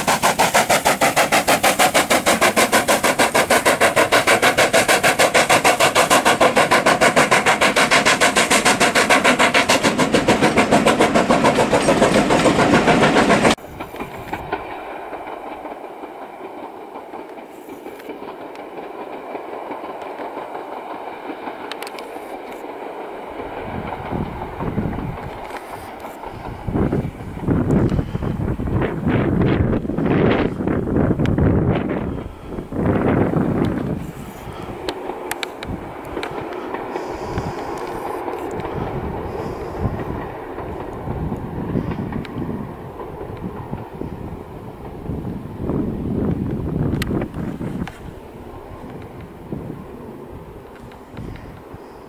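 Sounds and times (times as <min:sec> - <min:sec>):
distant train: 0:00.0 - 0:52.0
steam train passing rhythmic beat: 0:00.0 - 0:52.0
wind on microphone: 0:23.4 - 0:52.0.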